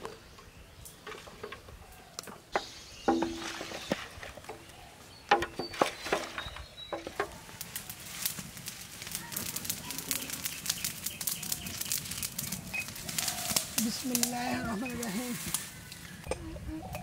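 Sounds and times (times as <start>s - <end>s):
wood fire crackling: 0.0s - 17.0s
wooden spatula scraping metal pot: 2.5s - 4.7s, 5.3s - 8.5s.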